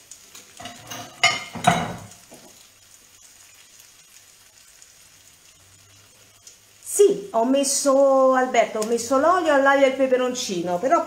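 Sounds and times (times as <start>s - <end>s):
faint sizzle from a pan: 0.0s - 11.0s
kitchenware clinking: 0.6s - 2.5s.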